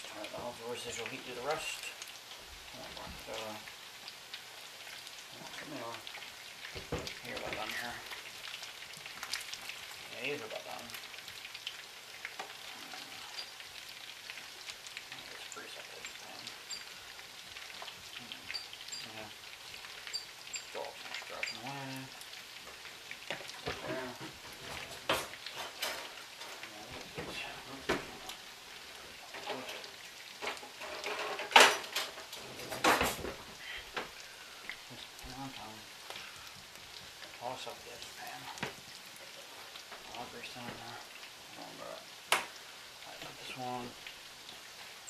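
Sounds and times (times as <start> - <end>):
meatballs sizzling in a pan: 0.0 - 45.0
cookware and utensils clattering: 23.5 - 28.2, 29.2 - 33.5
crackling pops of fat: 42.3 - 42.6.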